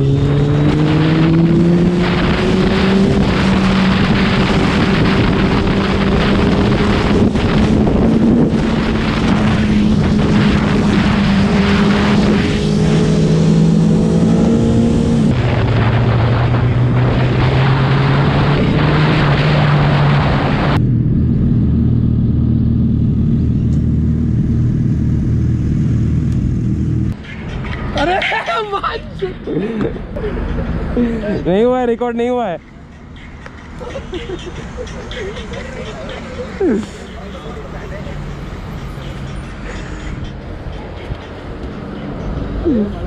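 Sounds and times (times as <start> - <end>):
wind rush on microphone: 0.5 - 20.8
motorcycle engine running: 20.8 - 27.1.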